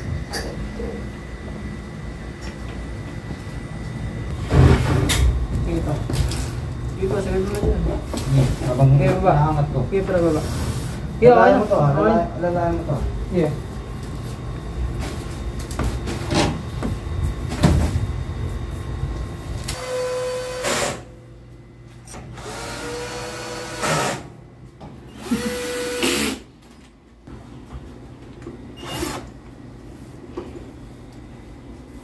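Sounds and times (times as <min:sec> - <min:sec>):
drill driving screws: 0:22.4 - 0:24.3, 0:25.2 - 0:26.4, 0:28.8 - 0:29.3.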